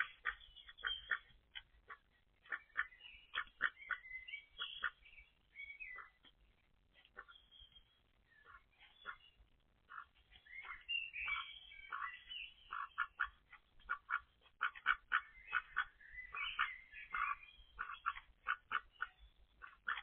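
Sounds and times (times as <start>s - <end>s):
ducks quacking: 0.0s - 5.1s, 5.8s - 6.3s, 7.0s - 7.4s, 8.4s - 20.0s.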